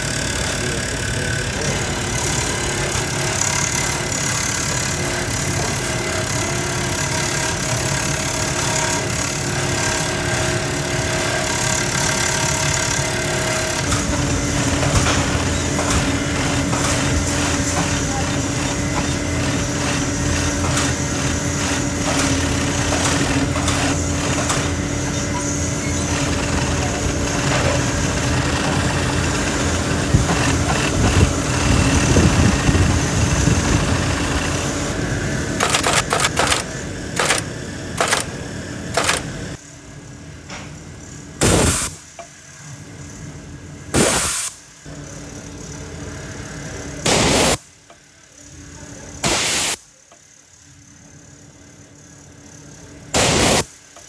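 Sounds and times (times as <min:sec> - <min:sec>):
sewing machine stitching: 0:00.0 - 0:34.7, 0:35.6 - 0:37.4, 0:38.0 - 0:38.3, 0:38.9 - 0:39.3.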